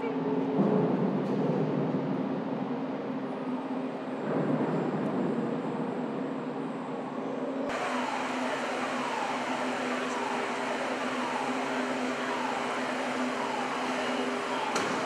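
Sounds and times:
faint falling whine: 7.7s - 15.0s
heavy machinery drone: 7.7s - 15.0s
steady hum tones: 7.7s - 15.0s.

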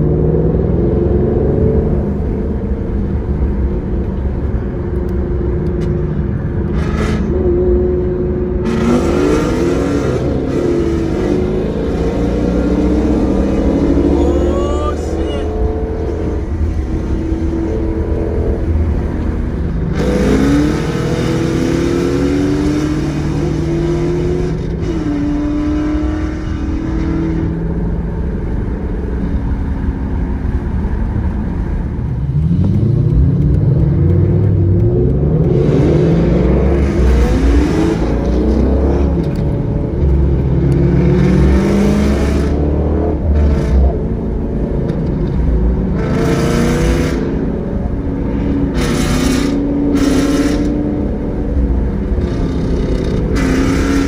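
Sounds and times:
car engine accelerating hard: 0.0s - 54.0s
road and wind noise: 0.0s - 54.0s.

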